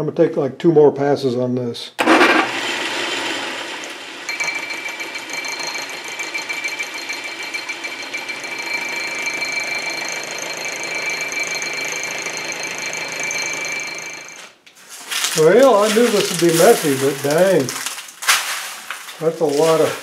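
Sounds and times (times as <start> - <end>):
high thin whine: 15.0 - 17.8.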